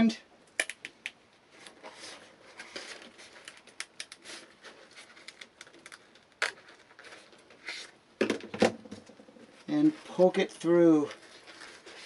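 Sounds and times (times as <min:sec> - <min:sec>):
fabric rustling and crinkling: 0:09.4 - 0:12.0.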